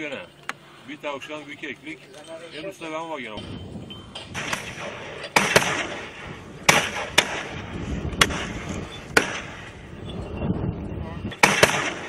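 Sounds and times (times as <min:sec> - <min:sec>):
wind and rustling movement: 0:00.0 - 0:12.0
shotgun shots: 0:04.3 - 0:09.7, 0:11.3 - 0:12.0.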